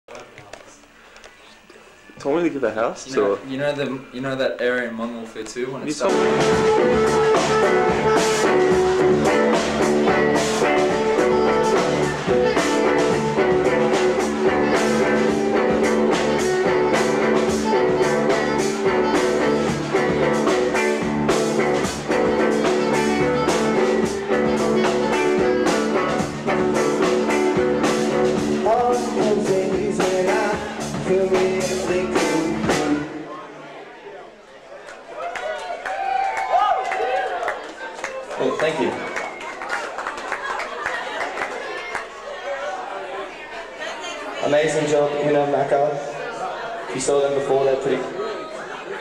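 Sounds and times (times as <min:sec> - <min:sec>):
live band playing: 0:05.8 - 0:33.3
alto saxophone melody: 0:06.1 - 0:30.0.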